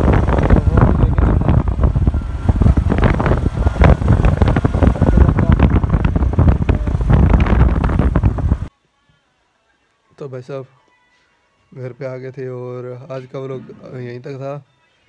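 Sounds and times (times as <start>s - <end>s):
motorcycle engine and tyre noise: 0.0s - 8.7s
wind buffeting microphone: 0.0s - 8.7s.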